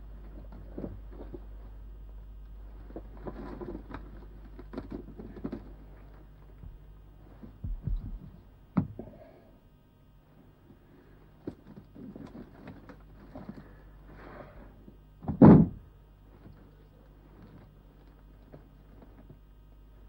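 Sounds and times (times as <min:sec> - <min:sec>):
rustles: 0:00.0 - 0:08.5
books knocking on shelves: 0:07.6 - 0:09.2, 0:15.2 - 0:15.9
books thudding into basket: 0:15.2 - 0:15.8.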